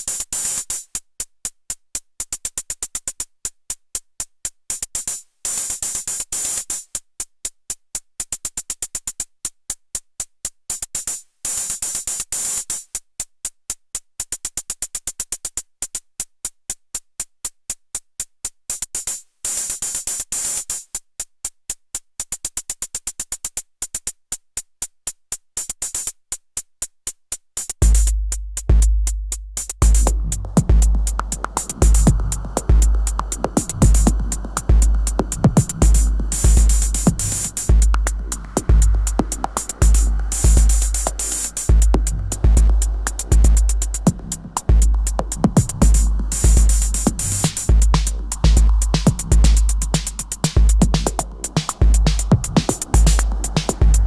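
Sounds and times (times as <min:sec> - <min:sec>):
drum machine clicking hits: 0:27.8 - 0:54.0
deep low drum hits: 0:29.8 - 0:54.0.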